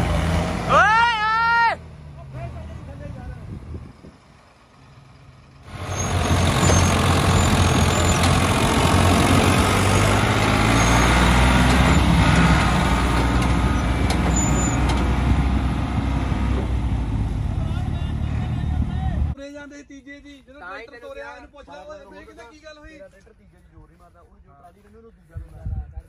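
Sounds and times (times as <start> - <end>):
diesel tractor engine drone: 0.0 - 19.4.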